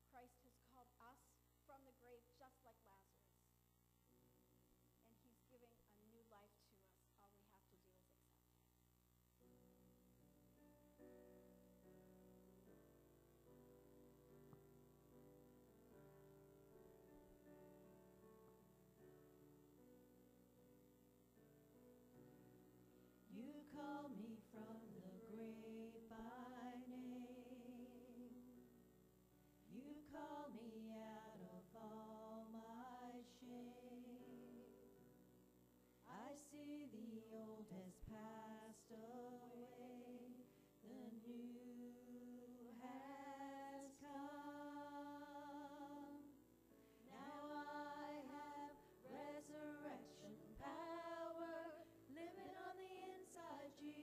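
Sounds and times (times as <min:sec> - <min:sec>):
women singing a worship song: 0:23.3 - 0:28.7, 0:29.7 - 0:35.0, 0:36.0 - 0:46.4, 0:47.0 - 0:54.0.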